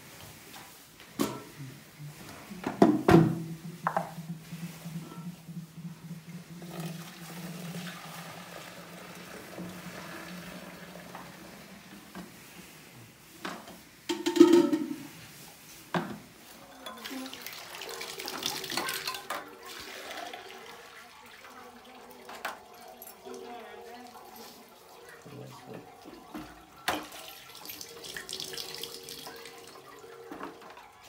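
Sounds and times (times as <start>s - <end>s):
milk pouring and splashing: 3.7s - 12.2s, 16.5s - 31.0s
steel vessels knocking: 14.1s - 15.1s.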